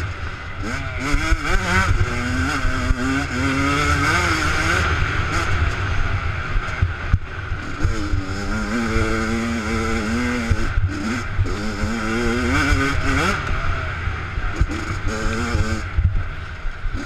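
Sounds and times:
minibike engine revving: 0:00.0 - 0:17.0
wind rumble on microphone: 0:12.7 - 0:17.0.

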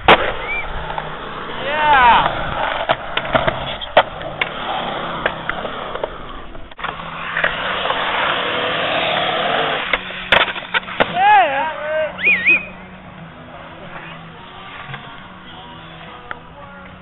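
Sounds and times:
skateboard wheels rolling on concrete: 0:00.0 - 0:17.0
skateboard clacks: 0:01.9 - 0:08.5, 0:09.8 - 0:11.6.

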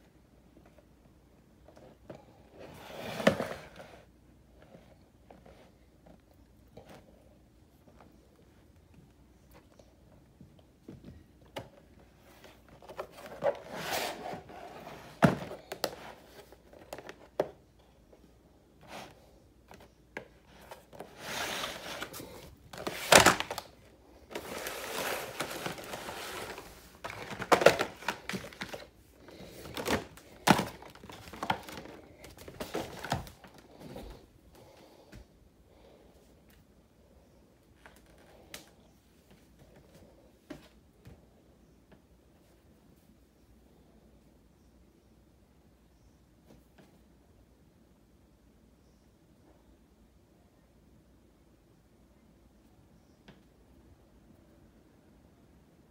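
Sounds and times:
plastic packaging crinkling: 0:20.9 - 0:34.1.

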